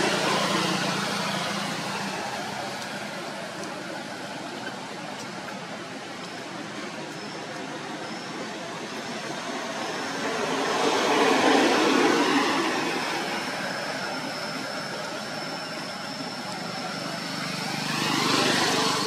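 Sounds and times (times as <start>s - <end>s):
high-pitched whine: 0.0s - 19.0s
motor vehicles passing: 16.3s - 19.0s.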